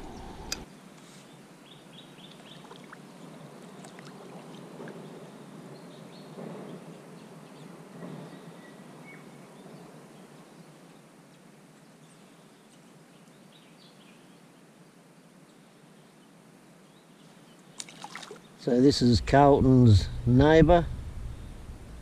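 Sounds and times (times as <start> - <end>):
kayak paddle dipping into water: 17.8 - 18.4.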